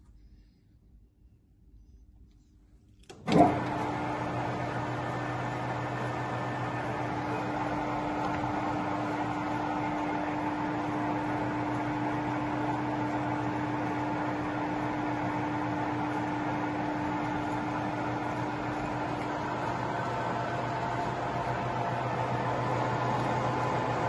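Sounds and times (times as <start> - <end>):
constant lathe whine: 3.2 - 24.0
lathe motor humming: 3.2 - 24.0.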